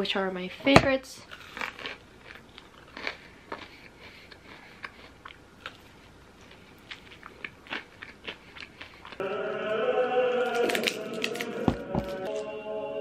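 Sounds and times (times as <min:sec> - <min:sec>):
fried chicken crunching: 0:01.3 - 0:09.2, 0:10.5 - 0:12.3.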